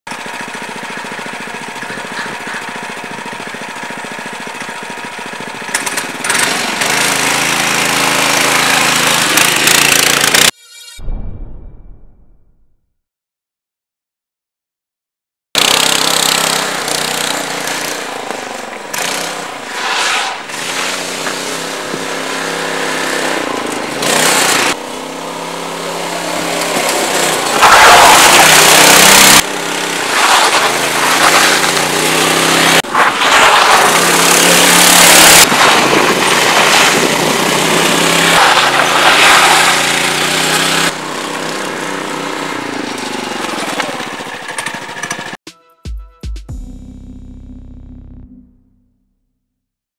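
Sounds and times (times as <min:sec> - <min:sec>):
buggy engine running: 0:00.1 - 0:10.5, 0:15.6 - 0:19.8, 0:20.4 - 0:45.4.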